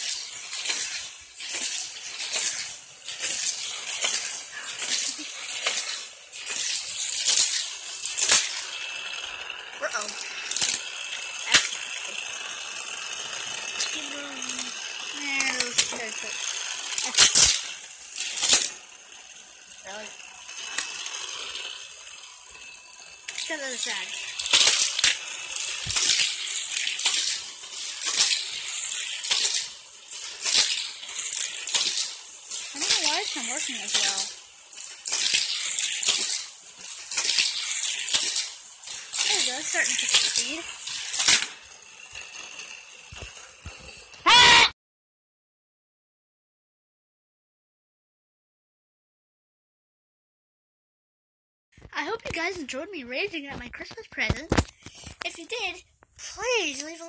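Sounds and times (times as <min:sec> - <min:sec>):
toy cars clattering on plastic track: 0:00.0 - 0:44.6, 0:51.8 - 0:57.0
sharp plastic clack: 0:41.1 - 0:41.6.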